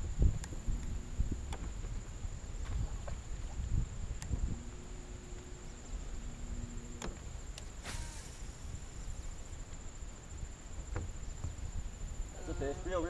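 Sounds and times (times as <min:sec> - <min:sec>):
faint hum: 0:00.0 - 0:13.0
wind and water rumble: 0:00.0 - 0:13.0
brief swish: 0:07.8 - 0:08.7.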